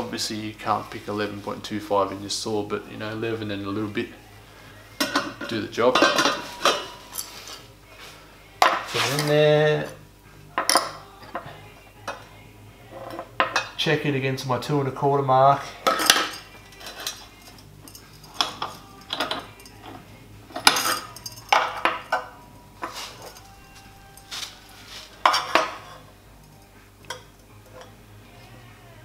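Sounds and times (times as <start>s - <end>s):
steel tube clinking on metal: 5.0s - 7.6s, 15.8s - 24.6s, 25.2s - 28.0s.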